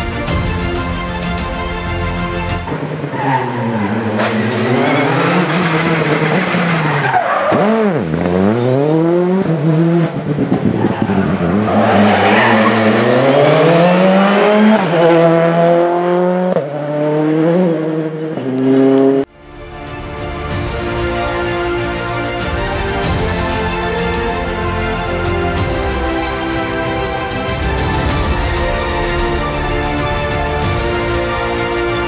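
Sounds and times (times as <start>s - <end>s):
background music: 0.0s - 5.5s, 11.4s - 18.0s, 19.3s - 32.0s
rally car engine revving: 2.6s - 19.3s.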